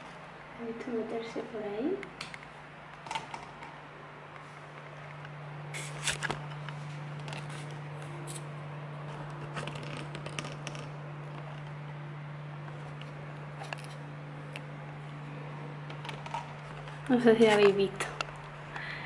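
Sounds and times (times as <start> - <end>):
steady low hum: 0.0 - 19.0
camera handling rustles and clicks: 5.1 - 8.5.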